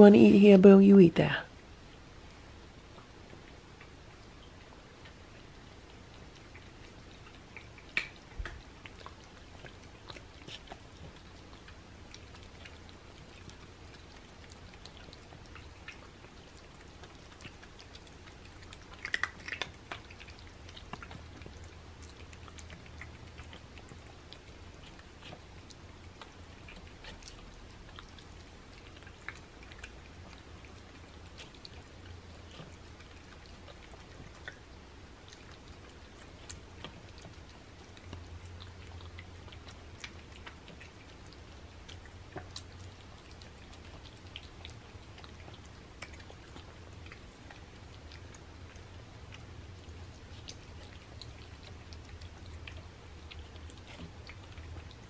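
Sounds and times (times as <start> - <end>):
cats chewing wet food: 1.5 - 55.0.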